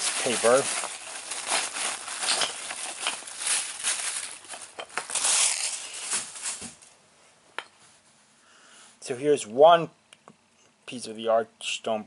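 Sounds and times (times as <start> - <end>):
packing paper rustling: 0.0 - 6.9.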